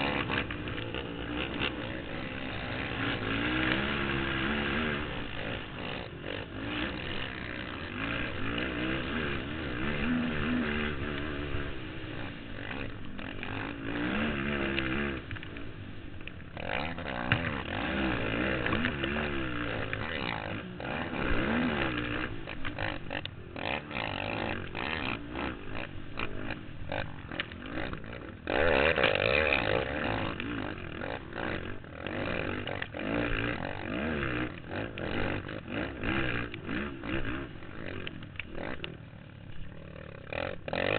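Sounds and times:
quad engine revving: 0.0 - 40.9.

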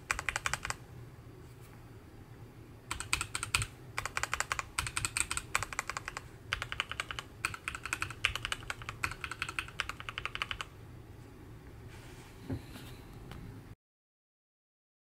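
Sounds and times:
mechanical keyboard typing: 0.0 - 0.8, 2.9 - 10.7.

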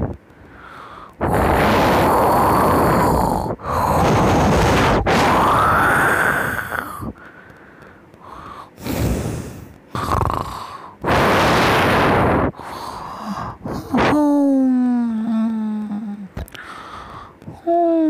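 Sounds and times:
loud breathing: 0.3 - 14.1, 16.5 - 17.5.

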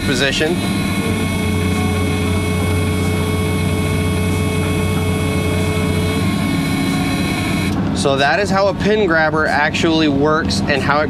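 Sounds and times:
safety buzzer: 0.0 - 7.8
excavator diesel engine: 0.0 - 11.0
hydraulic whine: 0.0 - 11.0.

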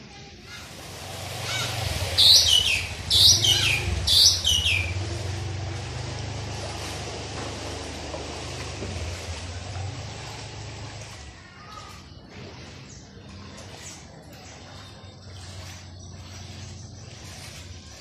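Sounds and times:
motorbike engine humming: 0.7 - 17.9
high falling chirps: 1.4 - 5.6.

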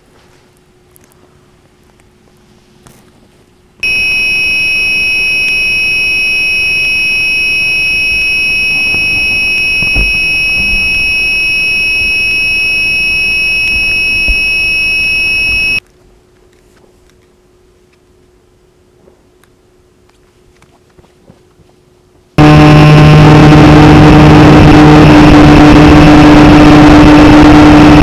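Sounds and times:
high-pitched electronic whine: 3.8 - 15.8, 22.4 - 28.0.

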